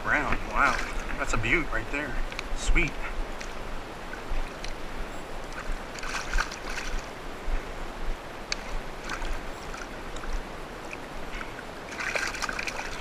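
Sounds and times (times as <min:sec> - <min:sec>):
creek water rushing: 0:00.0 - 0:13.0
splashes and knocks in net: 0:06.0 - 0:07.0, 0:11.9 - 0:13.0.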